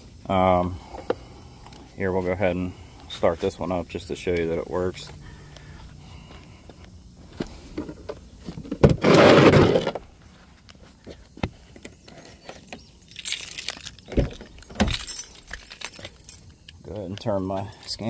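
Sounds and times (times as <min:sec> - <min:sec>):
scraping rustle: 0:07.4 - 0:11.2.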